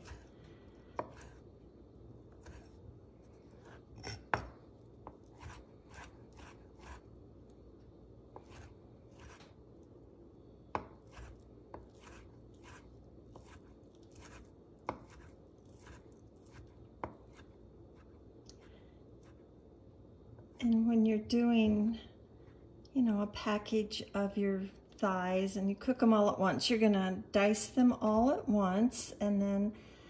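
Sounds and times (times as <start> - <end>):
knife chopping on wooden board: 0.0 - 0.3, 1.0 - 1.4, 3.6 - 7.0, 8.4 - 9.5, 10.7 - 18.1.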